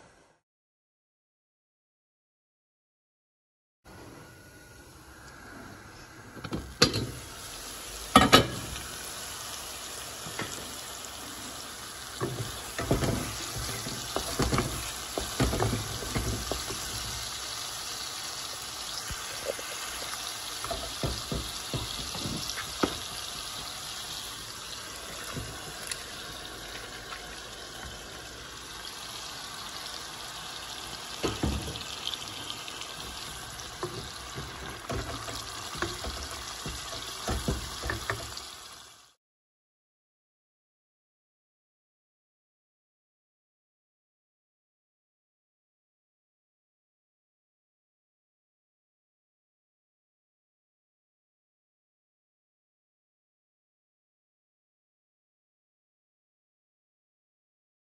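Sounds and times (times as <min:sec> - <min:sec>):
food sizzling in a pot: 0:04.0 - 0:39.2
metal pot lid clank: 0:08.2 - 0:08.7
wooden spatula scraping a pot: 0:12.3 - 0:17.3, 0:19.2 - 0:23.3.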